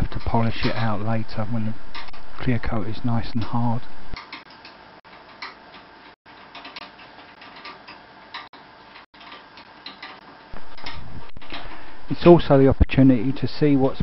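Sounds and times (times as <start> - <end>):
metal parts clicking and tapping: 4.2 - 11.8.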